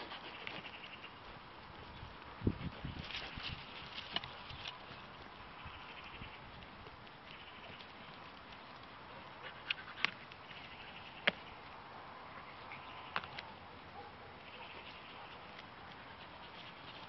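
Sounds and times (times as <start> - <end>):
goats butting heads: 2.4 - 5.6.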